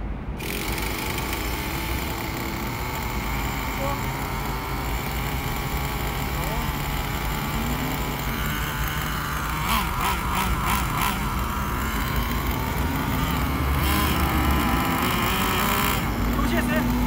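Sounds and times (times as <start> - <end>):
small nitro engine running: 0.4 - 17.0.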